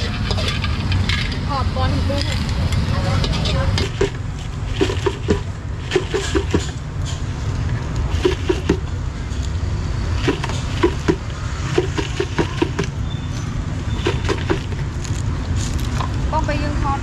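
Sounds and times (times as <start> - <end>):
street traffic rumble: 0.0 - 17.0
plastic cups and bag rustling: 3.3 - 8.9, 14.0 - 16.3.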